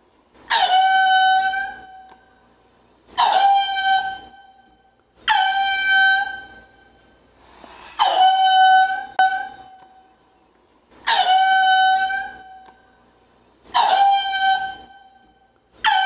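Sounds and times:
animal calling: 0.4s - 2.3s, 3.1s - 7.0s, 7.6s - 10.2s, 11.0s - 13.0s, 13.6s - 16.0s.

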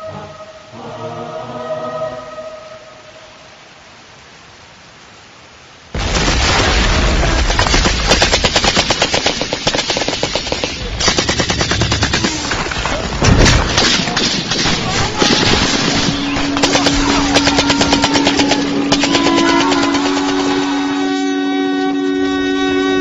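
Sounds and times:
heavy blast: 6.0s - 21.2s
machine-gun bursts: 7.2s - 21.0s.

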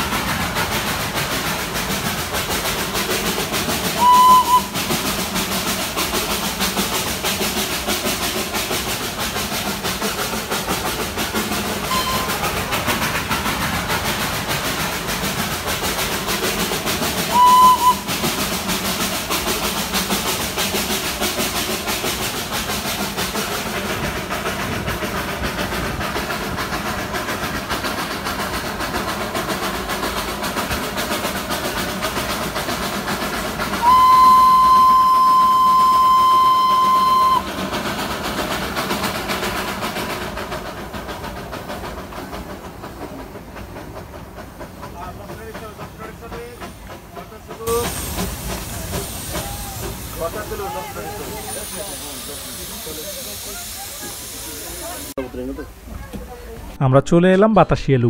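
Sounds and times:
train running on rails: 0.0s - 58.0s
steam locomotive whistle toots: 3.8s - 5.2s, 11.8s - 12.7s, 17.2s - 18.4s, 33.6s - 37.6s, 47.7s - 55.1s.

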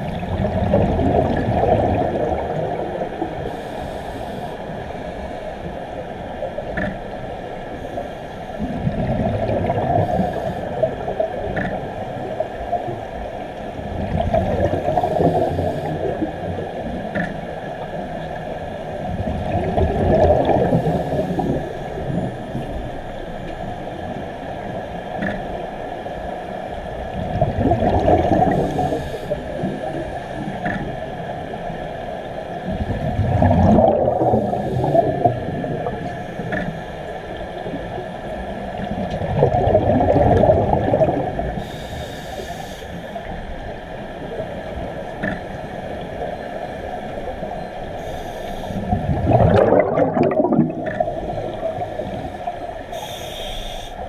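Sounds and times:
steady underwater hiss: 0.0s - 54.0s
bubbling exhalations underwater: 0.2s - 3.0s, 19.2s - 21.5s, 27.3s - 28.9s, 32.8s - 36.0s, 39.1s - 41.6s, 48.9s - 52.0s.

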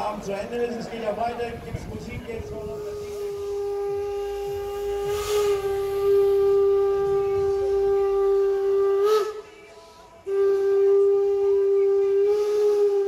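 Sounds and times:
rush of steam: 1.8s - 10.5s
steam locomotive whistle: 2.4s - 13.0s.

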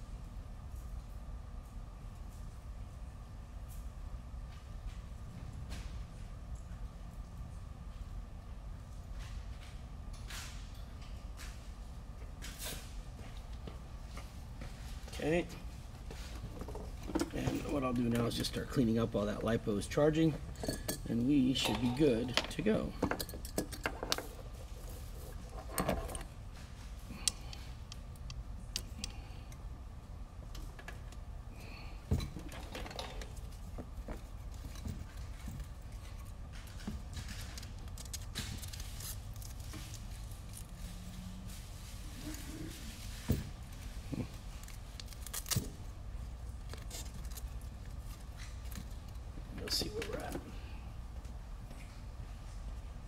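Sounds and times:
low steady hum: 0.0s - 53.0s.

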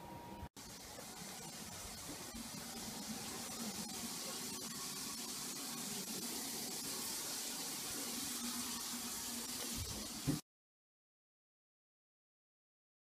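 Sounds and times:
steady hiss: 0.6s - 10.4s.

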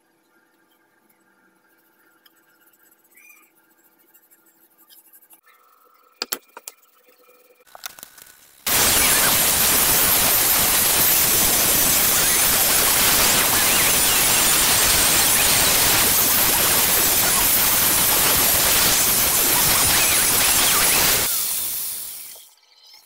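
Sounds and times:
electric disc sander running: 8.7s - 22.2s.

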